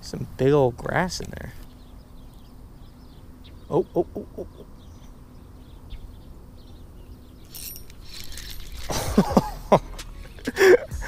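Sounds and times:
spinning reel cranking: 0:07.5 - 0:09.0.

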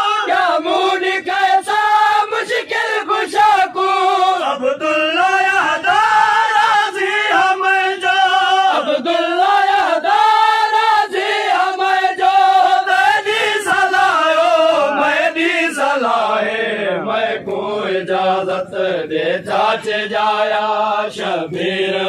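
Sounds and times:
men chanting in unison: 0:00.0 - 0:22.0.

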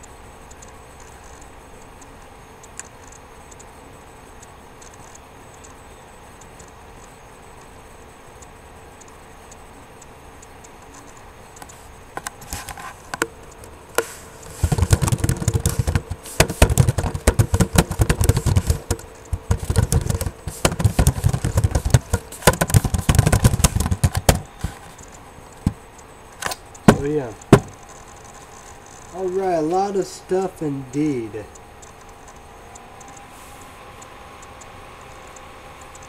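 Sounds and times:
faint steady hum: 0:00.0 - 0:36.0
rapid clattering and scraping: 0:14.0 - 0:25.8.

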